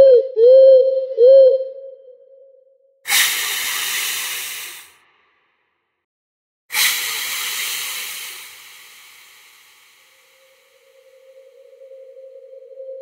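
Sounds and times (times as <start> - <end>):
hissing: 3.1 - 4.9, 6.7 - 12.4.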